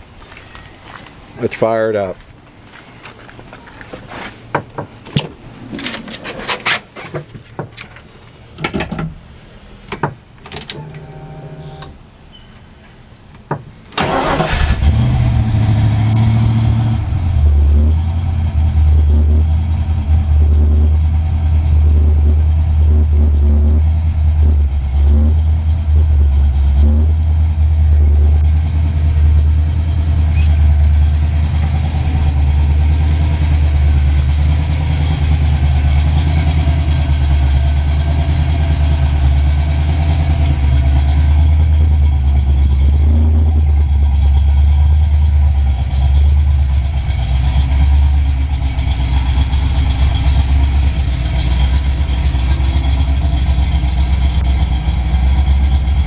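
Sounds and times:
engine cranking and starting: 0:10.5 - 0:11.9, 0:14.0 - 0:15.7
loud engine idle: 0:17.1 - 0:56.0.

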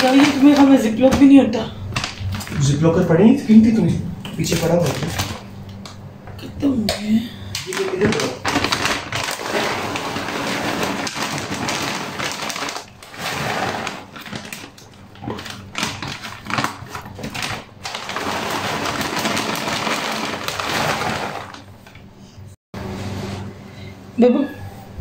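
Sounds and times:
plastic bag rustling and crinkling: 0:00.0 - 0:02.8, 0:04.3 - 0:05.5, 0:07.5 - 0:22.0.

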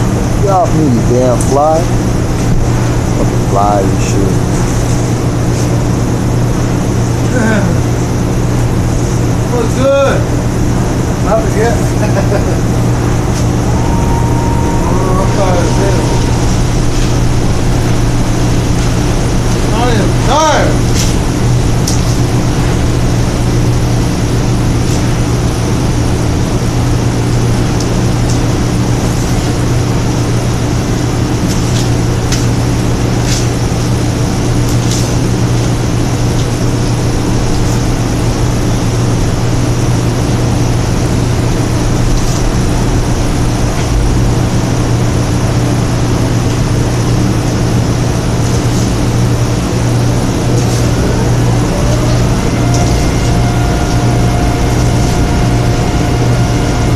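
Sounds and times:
machine humming: 0:00.0 - 0:56.9
palm fronds crackling: 0:15.7 - 0:25.8, 0:46.9 - 0:56.9.

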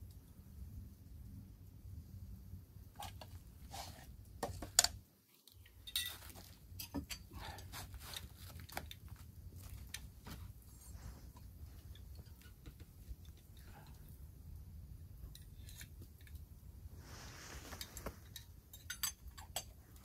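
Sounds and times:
metal cup and pot clinking: 0:05.8 - 0:07.3, 0:18.3 - 0:19.7.

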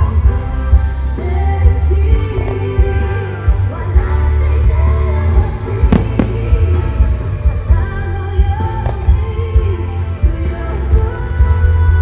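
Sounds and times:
song over loudspeakers: 0:00.0 - 0:12.0
sharp fireworks bangs: 0:05.9 - 0:06.9
fireworks going off: 0:05.9 - 0:07.0.

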